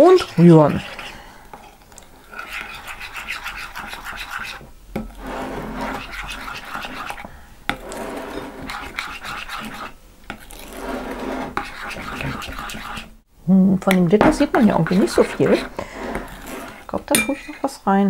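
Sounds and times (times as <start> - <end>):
spoon scraping glass bowl: 0.0 - 13.1, 14.4 - 17.7
spoon clinking against glass: 17.2 - 17.6.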